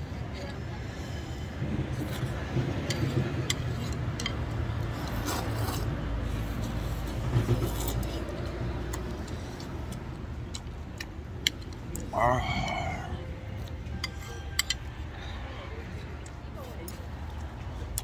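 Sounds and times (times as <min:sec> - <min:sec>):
person slurping noodles: 0:12.1 - 0:13.2.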